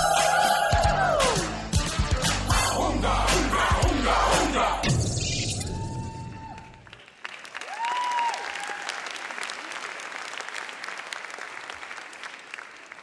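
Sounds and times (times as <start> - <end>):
high cheer: 0.0 - 1.6, 5.6 - 11.5
audience applauding: 6.4 - 13.0.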